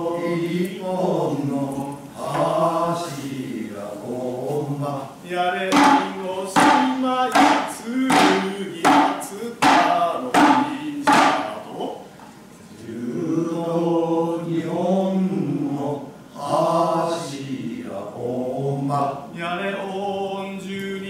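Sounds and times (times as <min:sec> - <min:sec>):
hand drum strikes: 0:05.7 - 0:11.6.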